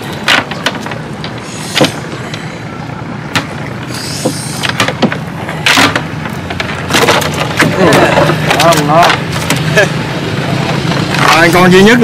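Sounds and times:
engine-like low hum: 0.0 - 12.0
short hissing: 1.4 - 2.0, 3.9 - 4.6
sharp knocks: 4.2 - 9.7.

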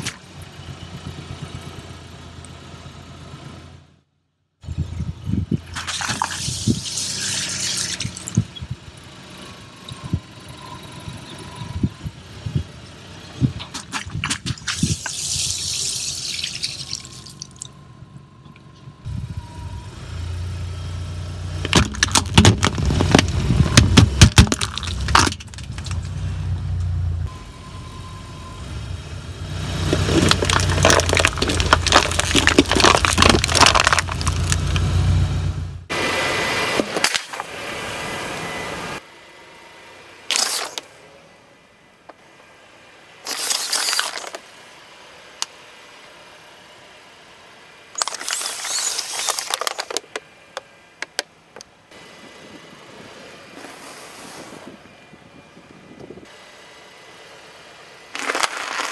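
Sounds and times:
low engine hum: 0.0 - 43.3
water balloons bursting and splashing: 5.7 - 8.5, 13.6 - 17.7, 21.7 - 26.1, 29.9 - 34.8
crackling crunch under tyre: 13.5 - 17.6, 21.6 - 26.3, 29.7 - 35.2, 43.2 - 44.5, 48.0 - 50.6, 58.1 - 58.9
sharp cracks and pops: 21.6 - 26.2, 29.9 - 34.9, 48.0 - 50.2, 58.2 - 58.9.

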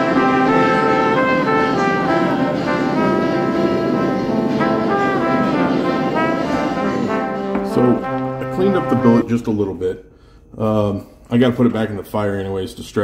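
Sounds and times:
background music with held notes: 0.0 - 9.4.

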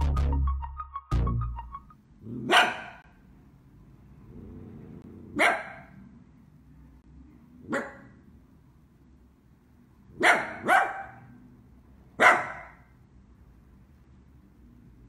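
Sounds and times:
dog barking: 2.3 - 3.1, 5.3 - 6.0, 7.6 - 8.2, 10.1 - 11.4, 12.2 - 12.9.

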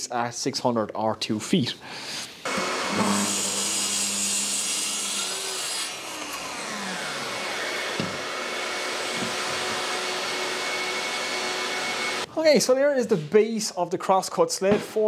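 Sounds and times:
dust extractor running: 2.5 - 12.3
saw motor winding down: 2.5 - 12.3
track saw cutting wood: 2.5 - 12.3
knocks: 8.0 - 8.2.

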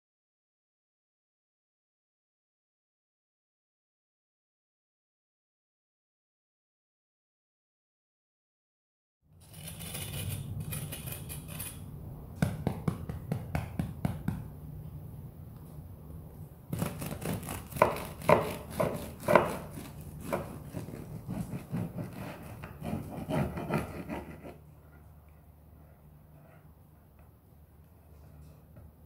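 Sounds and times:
bread knife sawing through loaf: 16.8 - 24.6.

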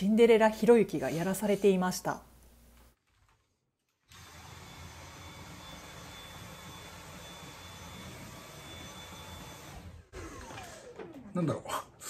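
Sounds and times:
handheld vacuum cleaner running: 4.1 - 11.2.

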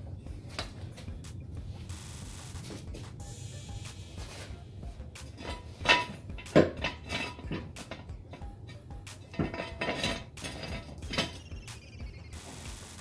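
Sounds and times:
metallic clanks and clinks: 5.3 - 11.5.

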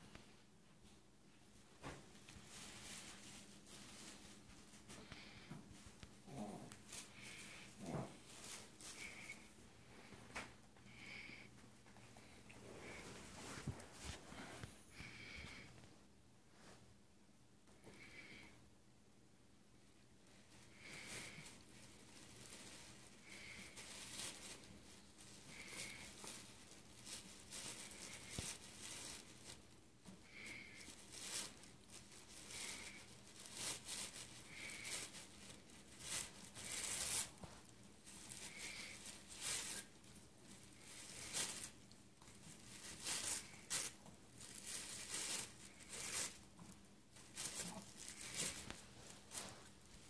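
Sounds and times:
tissue paper rustling and tearing: 2.1 - 5.0, 6.3 - 9.5, 20.4 - 50.0.

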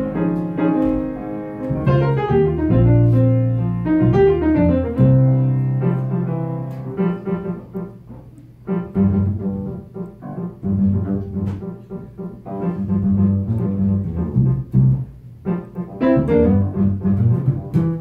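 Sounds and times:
plucked bass line: 0.0 - 5.6, 12.8 - 15.1, 16.0 - 18.0
jazz piano chords: 0.0 - 18.0.

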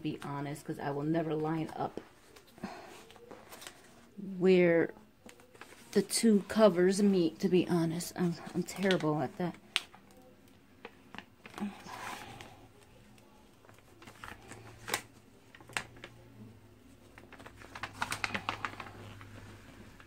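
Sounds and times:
plastic sheet crinkling: 5.2 - 7.1, 8.3 - 20.0.

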